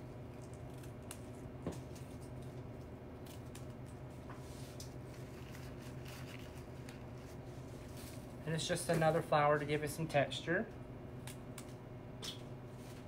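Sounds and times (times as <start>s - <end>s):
steady low hum: 0.0s - 13.0s
flower stems rustling and crackling: 3.3s - 9.7s.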